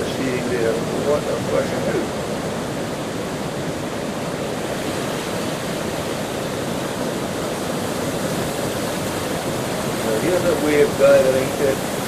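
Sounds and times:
heavy surf breaking: 0.0s - 12.0s
river rushing over shingle: 0.0s - 12.0s.

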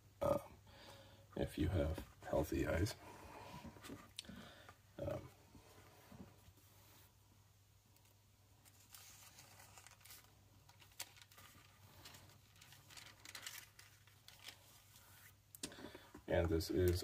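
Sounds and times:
thin paper pages turning: 8.0s - 15.4s.

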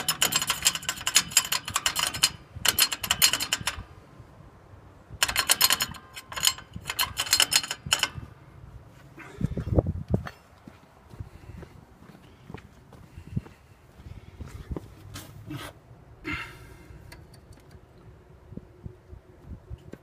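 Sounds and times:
brake springs rattling metallically: 0.0s - 4.1s, 5.1s - 8.5s.

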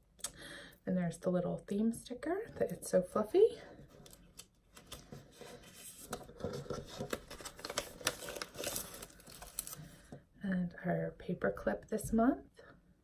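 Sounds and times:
packaging rustling and crinkling: 3.8s - 10.1s.

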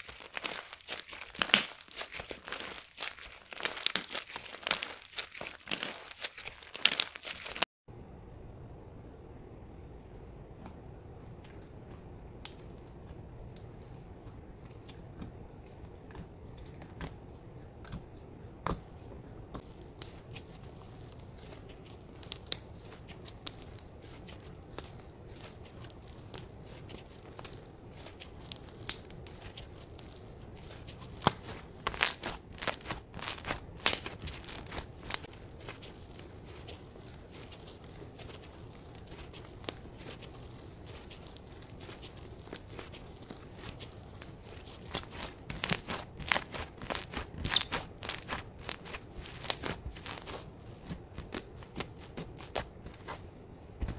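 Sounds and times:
slime crackling and popping: 0.0s - 7.7s, 19.6s - 53.0s.

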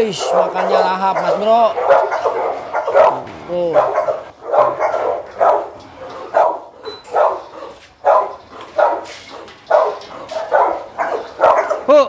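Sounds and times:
dog barking: 0.0s - 11.9s.

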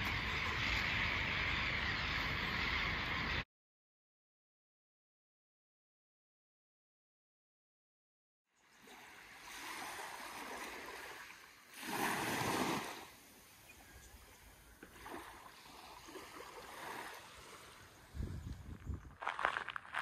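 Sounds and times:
small waves lapping on beach: 8.6s - 18.3s.

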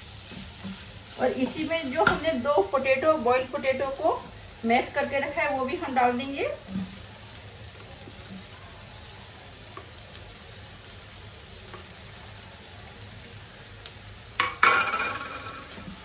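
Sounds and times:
vegetables sizzling: 0.0s - 16.0s.

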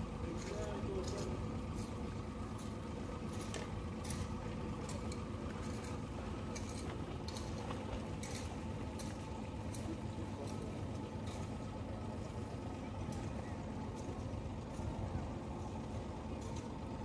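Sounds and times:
boat engine running: 0.0s - 17.0s.

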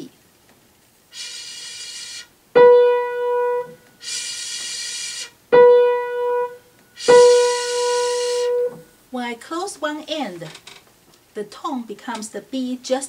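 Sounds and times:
breathy whistling tone: 1.1s - 2.3s, 3.9s - 5.4s, 6.9s - 8.8s
piano note: 2.6s - 3.8s, 5.6s - 8.8s.

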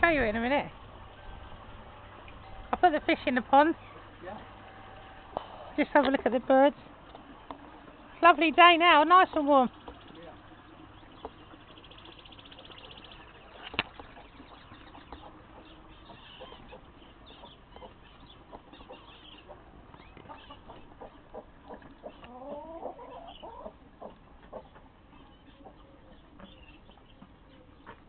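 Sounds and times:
small birds chirping: 1.2s - 4.6s, 5.3s - 28.0s
chickens clucking: 1.2s - 28.0s.

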